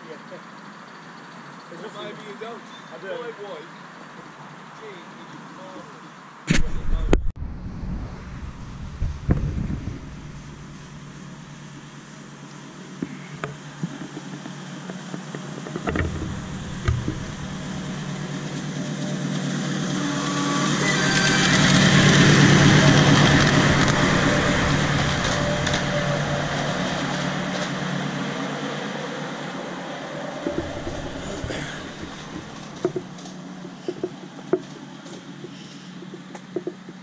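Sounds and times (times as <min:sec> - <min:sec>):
miniature locomotive passing: 0:08.5 - 0:36.3.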